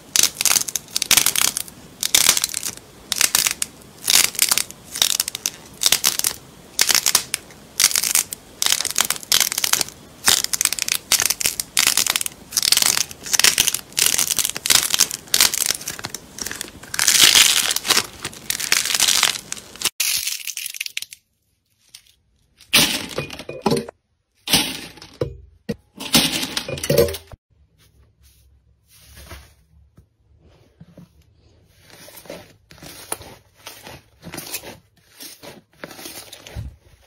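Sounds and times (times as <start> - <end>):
slime squeezed crackly squishes: 0.1 - 20.7.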